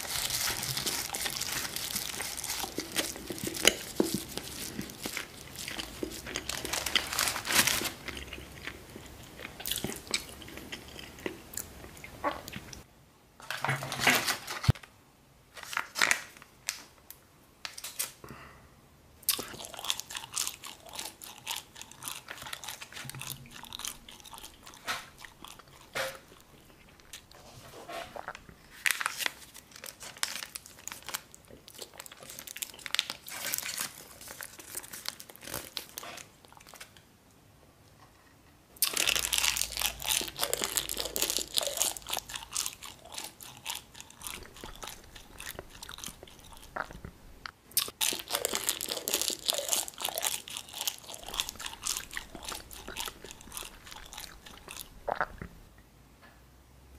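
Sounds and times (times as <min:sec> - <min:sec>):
plastic sachet crinkling: 0:00.0 - 0:08.2, 0:28.3 - 0:36.9, 0:38.8 - 0:47.0, 0:47.8 - 0:54.9.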